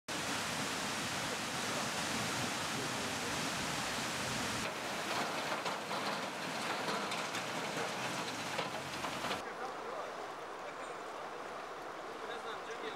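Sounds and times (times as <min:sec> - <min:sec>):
floodwater pouring through weir: 0:00.1 - 0:09.4
fast-flowing river rushing: 0:00.1 - 0:12.9.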